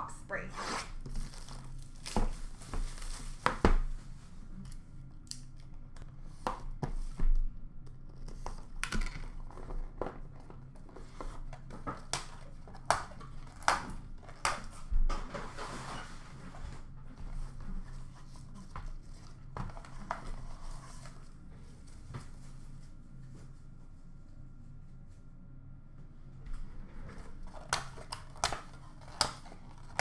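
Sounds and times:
faint low hum: 0.0s - 30.0s
wrapping rustling: 0.9s - 4.4s.

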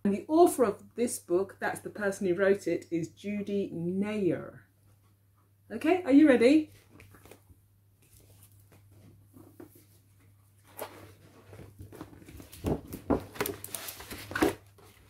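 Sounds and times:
book pages rustling and crackling: 6.7s - 15.0s.

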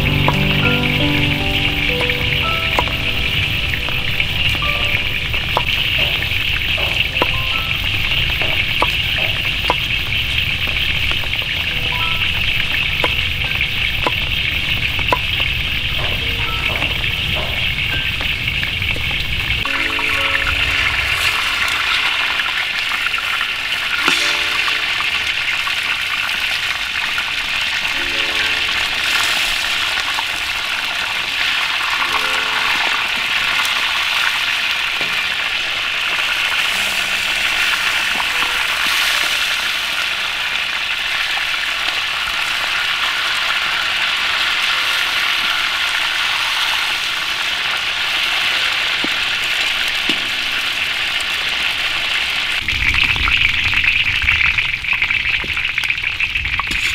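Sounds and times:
fish sizzling in hot oil: 32.8s - 56.9s.

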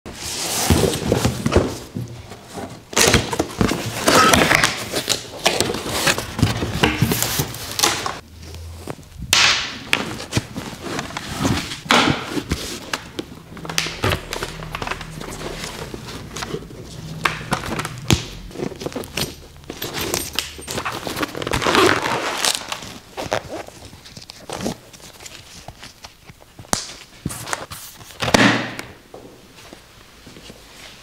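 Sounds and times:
cardboard box rustling: 0.3s - 8.2s, 10.0s - 26.0s.

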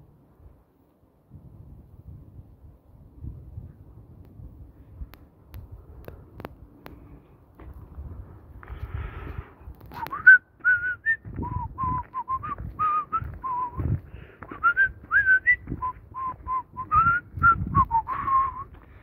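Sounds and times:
person whistling a tune: 10.0s - 18.8s.

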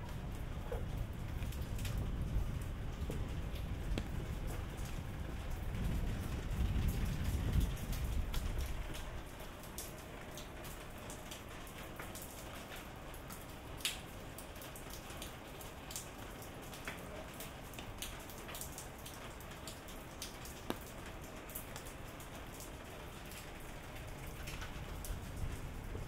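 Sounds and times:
raindrops ticking: 0.0s - 26.0s
steady rain hiss: 0.0s - 26.0s.

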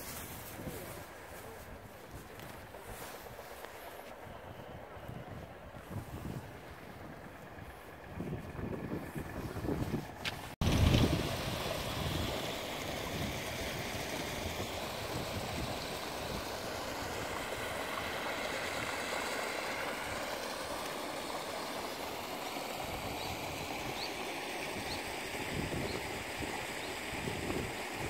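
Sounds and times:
stream rushing over stones: 10.6s - 28.0s.

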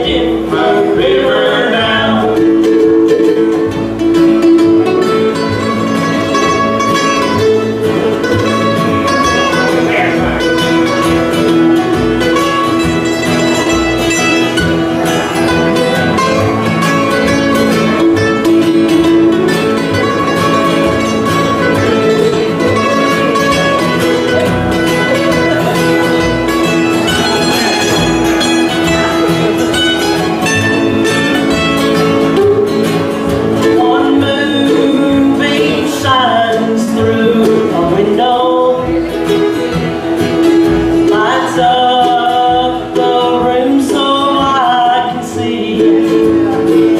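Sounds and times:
person singing: 0.0s - 3.7s, 13.4s - 39.7s, 40.9s - 46.9s
upright bass pulse: 0.0s - 35.4s
bluegrass band playing: 0.0s - 46.9s.

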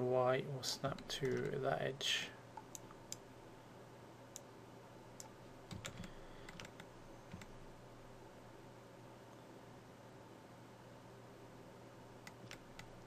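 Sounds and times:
faint steady hum: 0.0s - 13.0s
mouse and keyboard clicks: 5.2s - 7.6s, 12.2s - 13.0s.

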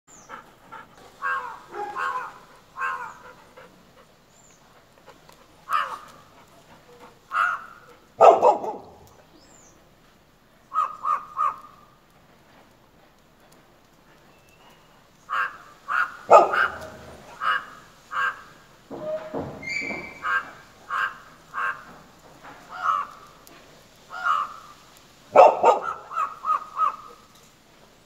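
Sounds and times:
crow cawing: 1.2s - 3.2s, 5.7s - 6.2s, 7.3s - 7.8s, 10.7s - 11.8s, 15.3s - 18.6s, 20.2s - 22.0s, 22.7s - 23.4s, 24.1s - 24.9s, 25.8s - 27.3s
dog barking: 1.2s - 3.3s, 5.7s - 6.1s, 7.3s - 9.1s, 15.4s - 17.6s, 25.3s - 27.1s.

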